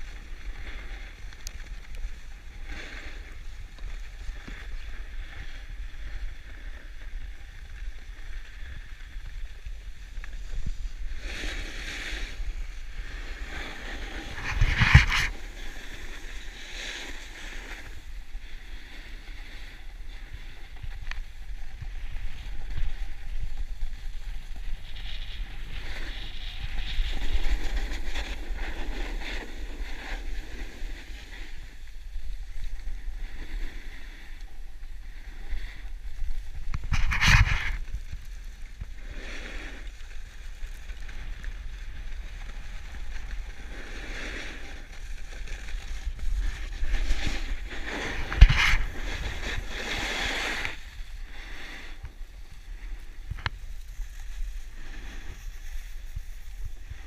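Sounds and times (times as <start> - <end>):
skis carving packed snow: 0.0 - 57.0
wind buffeting microphone: 12.2 - 16.3.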